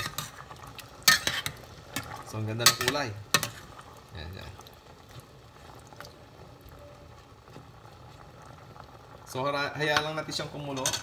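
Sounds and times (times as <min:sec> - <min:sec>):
food simmering in a pot: 0:00.0 - 0:11.0
metal spoon clinking on pot: 0:10.7 - 0:11.0.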